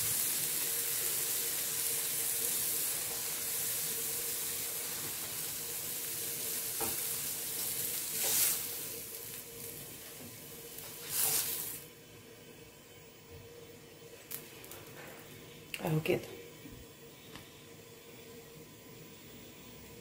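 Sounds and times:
vegetables sizzling in grill pan: 0.0 - 12.0.

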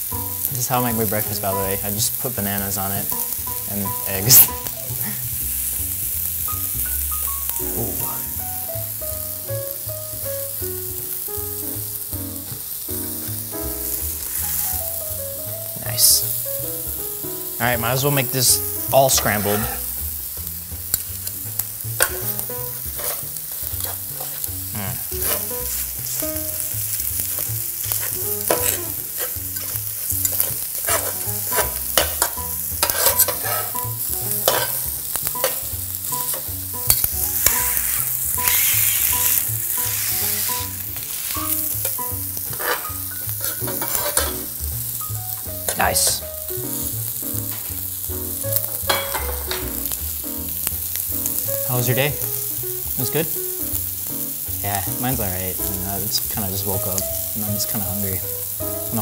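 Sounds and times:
eggs sizzling on a griddle: 0.0 - 59.0
spatula scraping griddle: 18.0 - 46.2, 48.5 - 50.0.

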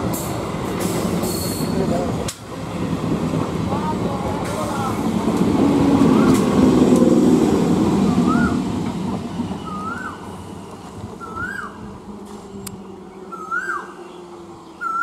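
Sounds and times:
train wheels rumbling on rails: 0.0 - 13.3
bird calling: 9.5 - 10.4, 11.2 - 11.8, 12.8 - 15.0.

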